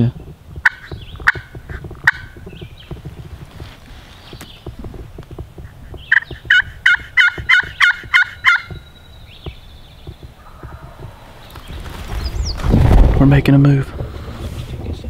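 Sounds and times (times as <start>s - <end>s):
turkey gobbling: 0.6s - 2.5s, 5.7s - 11.8s.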